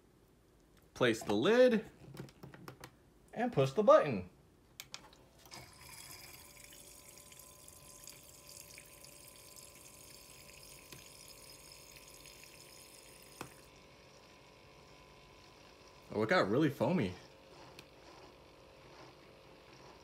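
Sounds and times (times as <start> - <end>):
milk frother humming: 5.4 - 20.0.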